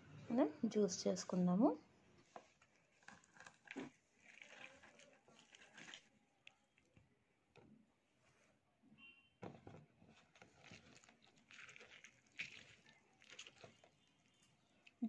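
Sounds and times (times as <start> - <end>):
wet squishing of citrus pulp: 2.6 - 7.2, 10.1 - 15.0.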